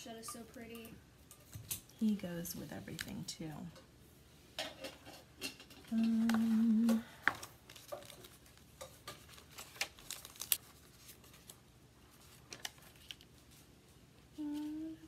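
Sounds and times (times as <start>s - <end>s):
person humming: 5.9s - 7.2s, 14.3s - 15.0s
packaging crinkling and rustling: 7.2s - 13.8s.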